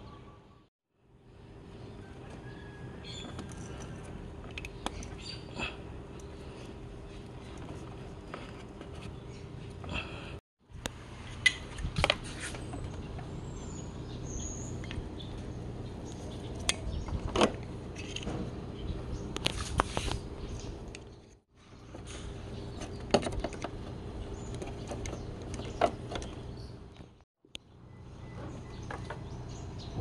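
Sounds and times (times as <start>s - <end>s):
steady low hum: 1.0s - 30.0s.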